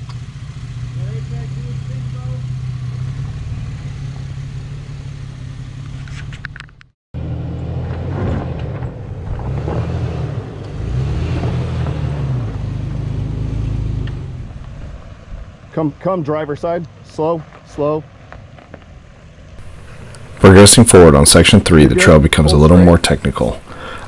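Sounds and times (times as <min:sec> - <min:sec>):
engine running at low revs: 0:00.0 - 0:15.8, 0:18.2 - 0:21.1
tyres grinding on gravel: 0:08.0 - 0:24.0.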